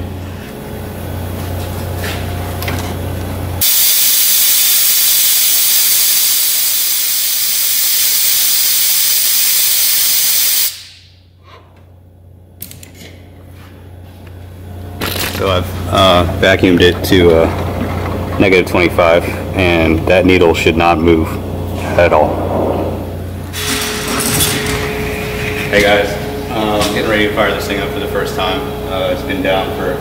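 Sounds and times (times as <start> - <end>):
compressed air vacuum tester hissing: 3.6 - 11.1.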